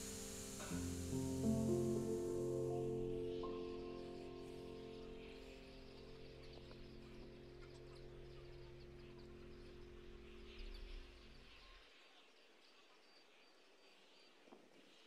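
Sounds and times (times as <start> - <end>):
background music chord: 0.0 - 11.5
faint bird chirps: 0.0 - 15.0
outdoor ambience: 0.0 - 15.0.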